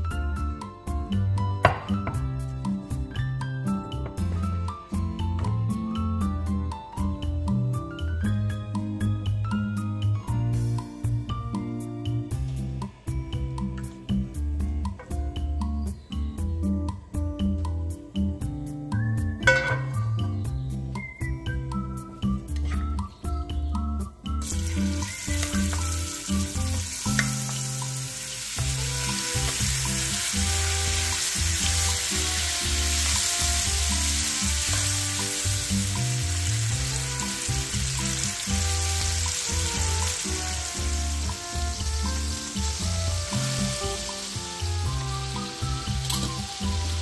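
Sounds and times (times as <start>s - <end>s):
background music with bass: 0.0s - 47.0s
chicken sizzling in oil: 24.4s - 47.0s.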